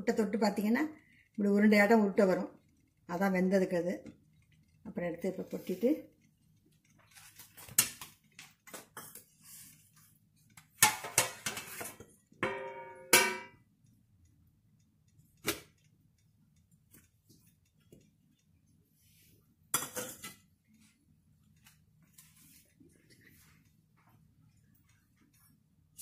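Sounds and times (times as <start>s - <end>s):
metal clang: 12.4s - 13.6s.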